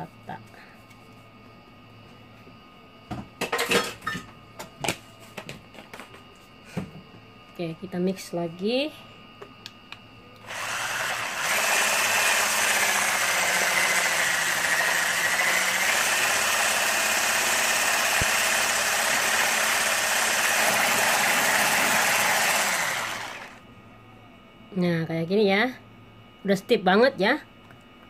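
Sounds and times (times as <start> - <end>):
electric hand mixer running: 10.4 - 23.6.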